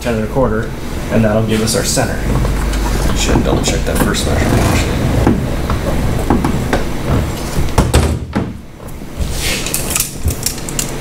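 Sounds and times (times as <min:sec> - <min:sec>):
steering cable rasp: 0:02.3 - 0:06.2
steering mechanism clicks and knocks: 0:02.3 - 0:09.0.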